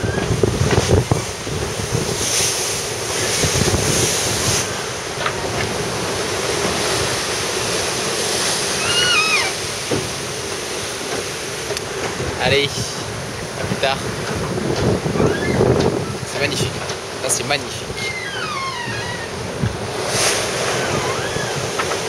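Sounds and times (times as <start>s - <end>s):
wind buffeting microphone: 0.0s - 8.8s, 9.6s - 22.0s
sea rushing along hull: 0.0s - 22.0s
wavering high squeak: 8.7s - 9.6s, 15.2s - 15.6s, 18.0s - 19.4s, 20.7s - 21.6s.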